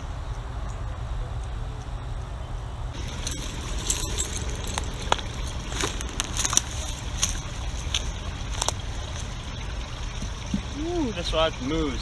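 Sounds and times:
footsteps crunching dry grass: 3.0 - 9.4.

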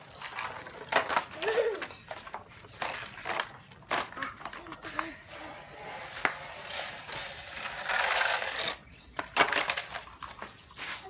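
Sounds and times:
plastic toy clacks: 0.1 - 10.5
plastic toys scraping on sand: 2.3 - 11.0.

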